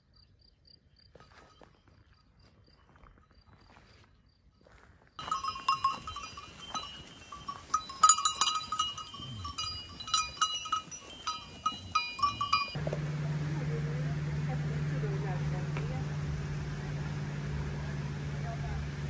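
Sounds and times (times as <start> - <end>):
animal bells clanking: 5.2 - 19.0.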